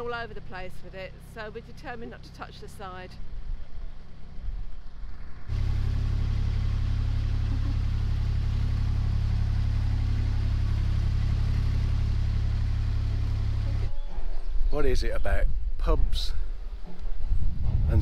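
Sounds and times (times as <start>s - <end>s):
boat diesel engine running: 0.0s - 3.2s, 5.5s - 14.0s.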